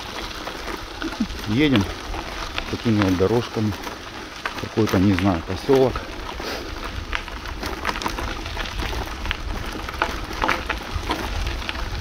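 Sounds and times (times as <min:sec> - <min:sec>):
wind rumbling on microphone: 0:05.4 - 0:12.0.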